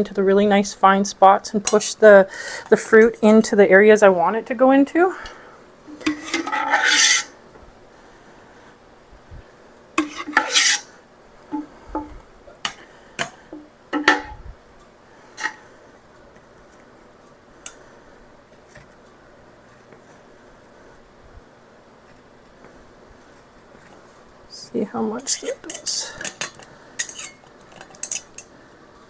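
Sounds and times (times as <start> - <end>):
metal spoon scraping a pot: 5.9 - 7.3, 10.0 - 10.9, 25.3 - 28.5.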